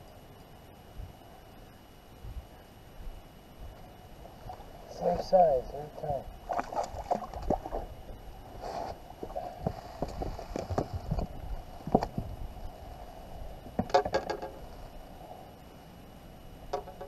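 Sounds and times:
knocks and scrapes on boat deck: 8.6 - 11.3, 13.8 - 14.8.

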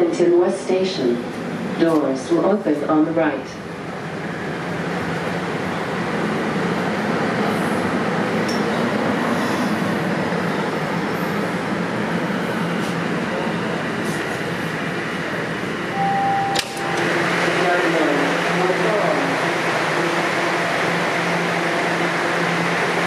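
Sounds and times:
subway train rumbling: 0.0 - 23.0
short steady tone: 15.9 - 17.1.

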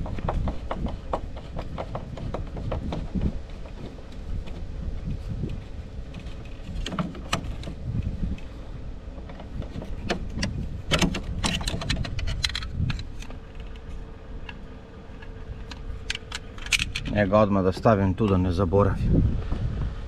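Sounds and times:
steady low rumble: 0.0 - 20.0
metallic clicks of tool and screws: 9.3 - 14.6, 15.2 - 17.2.

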